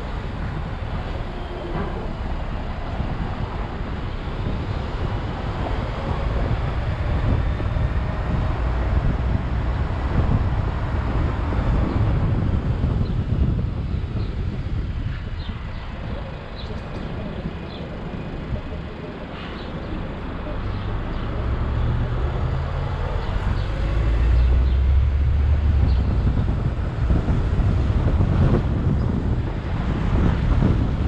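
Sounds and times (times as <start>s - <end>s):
car road noise: 0.0s - 31.0s
wind rumble on microphone: 0.0s - 31.0s.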